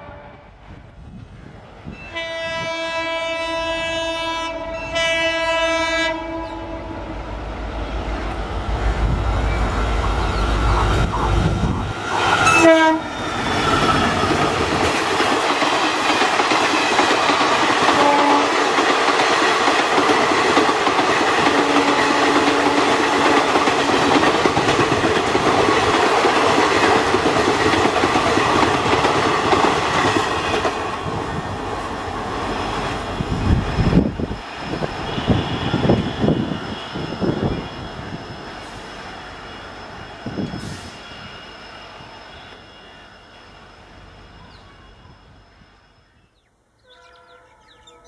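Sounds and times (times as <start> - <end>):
locomotive horn: 0.0 - 0.6, 2.0 - 7.3, 12.4 - 13.2, 17.9 - 18.6, 46.8 - 48.0
train coaches clattering on rails: 8.1 - 39.0.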